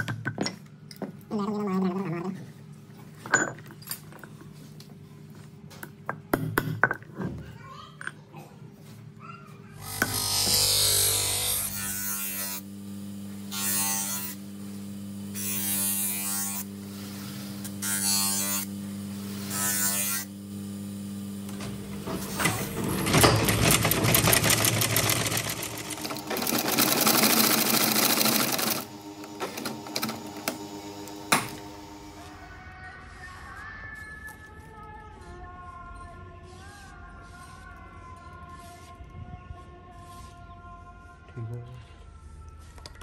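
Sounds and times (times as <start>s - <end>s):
bench grinder humming: 9.8s - 34.4s
sewing machine stitching: 22.0s - 31.7s.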